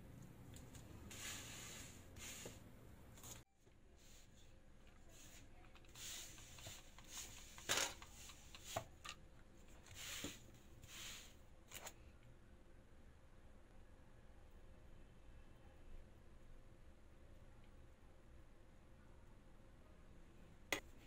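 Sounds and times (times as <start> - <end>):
pastry tools rustling and scraping: 0.5 - 12.1.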